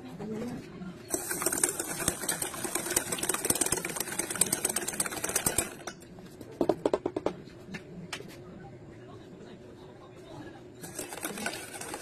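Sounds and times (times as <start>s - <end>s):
whisk clattering in metal bowl: 1.1s - 6.0s, 10.8s - 12.0s.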